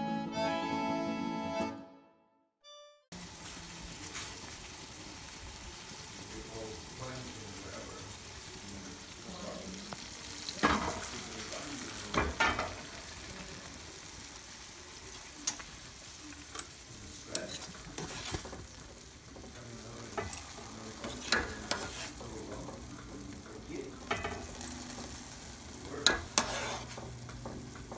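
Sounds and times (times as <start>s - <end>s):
tomatoes sizzling in a pan: 3.1s - 27.9s
water boiling: 3.1s - 27.9s
metal spoon scraping pot: 20.1s - 22.2s, 26.0s - 27.1s.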